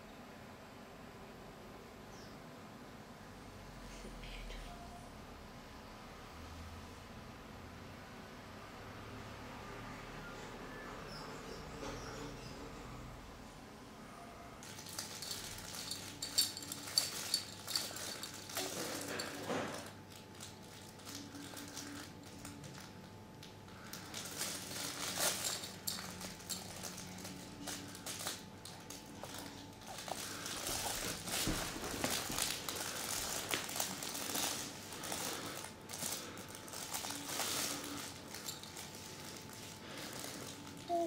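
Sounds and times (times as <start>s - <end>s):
play mat and fabric toys rustling: 14.5s - 41.0s.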